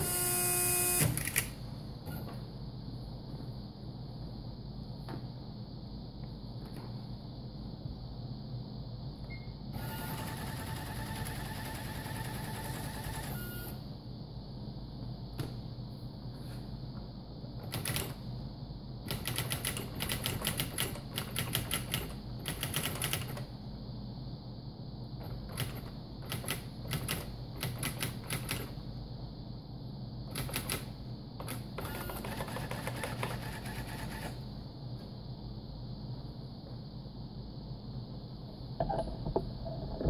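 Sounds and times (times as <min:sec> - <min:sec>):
typewriter whirring rattle: 0:00.0 - 0:01.6, 0:09.8 - 0:13.4, 0:17.6 - 0:18.2, 0:19.1 - 0:23.5, 0:25.3 - 0:28.8, 0:30.3 - 0:34.4.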